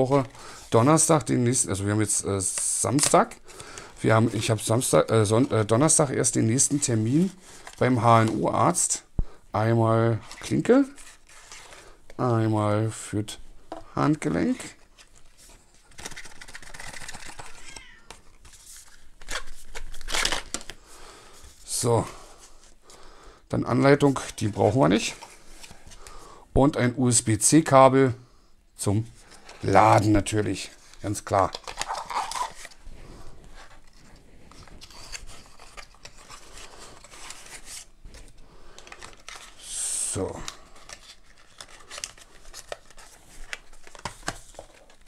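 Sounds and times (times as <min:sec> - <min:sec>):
hands handling cardboard packaging: 0:00.0 - 0:08.7, 0:13.7 - 0:20.8, 0:29.2 - 0:45.0.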